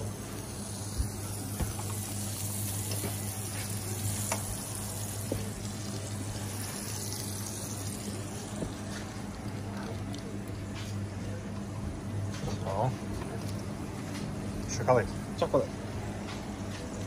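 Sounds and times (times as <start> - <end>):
food sizzling on griddle: 0.0 - 10.9
low kitchen hum: 0.0 - 17.0.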